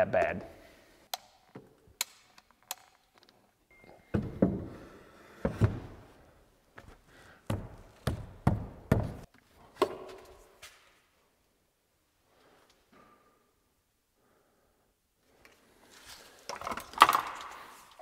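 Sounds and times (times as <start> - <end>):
wooden thunks and knocks: 4.1 - 4.8, 5.4 - 6.0.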